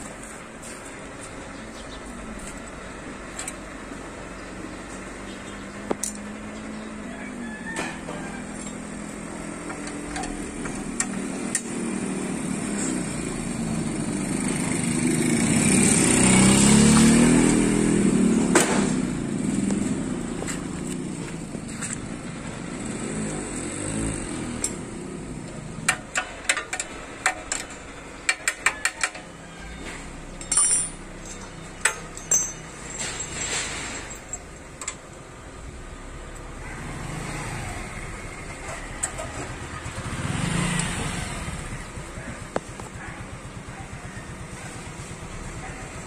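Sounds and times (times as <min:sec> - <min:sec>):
hand tools clinking on metal: 0:07.8 - 0:12.0, 0:25.4 - 0:35.1.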